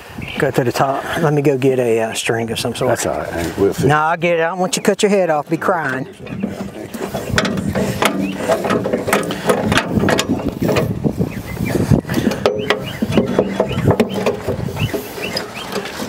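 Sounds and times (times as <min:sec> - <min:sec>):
metal engine cover clanking: 0:06.2 - 0:11.0, 0:12.2 - 0:16.0.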